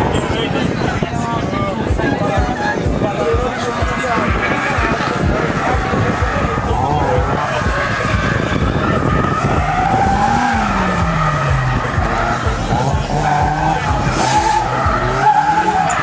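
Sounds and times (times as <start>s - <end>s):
car engine revving: 2.4s - 16.0s
tyre squeal: 3.9s - 16.0s.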